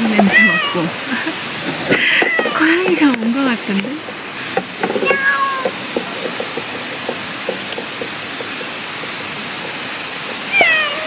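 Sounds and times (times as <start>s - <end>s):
steady background hiss: 0.0s - 11.0s
cat meowing: 0.2s - 1.0s, 5.0s - 5.8s, 10.5s - 11.0s.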